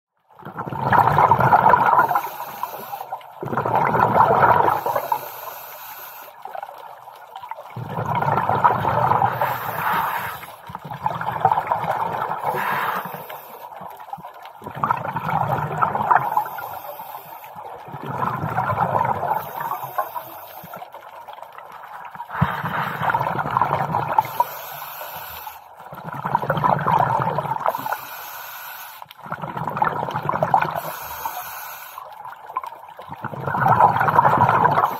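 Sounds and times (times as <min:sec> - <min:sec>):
exhaled bubbles gurgling underwater: 0:00.2 - 0:34.9
diver breathing through regulator: 0:02.0 - 0:03.2, 0:04.6 - 0:06.4, 0:09.2 - 0:10.7, 0:12.4 - 0:13.7, 0:19.3 - 0:20.8, 0:22.3 - 0:23.5, 0:24.2 - 0:25.7, 0:27.7 - 0:29.1, 0:30.8 - 0:32.1.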